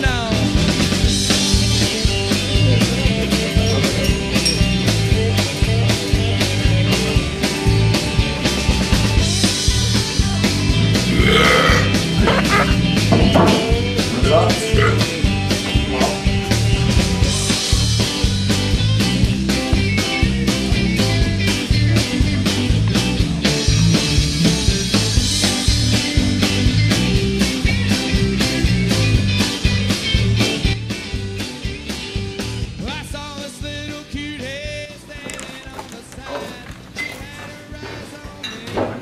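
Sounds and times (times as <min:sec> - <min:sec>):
rock song with steady beat: 0:00.0 - 0:39.0.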